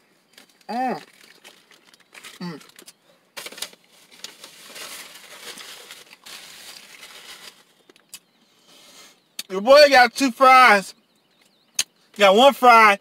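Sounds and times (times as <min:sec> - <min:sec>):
paper packaging rustling: 0:00.3 - 0:08.0.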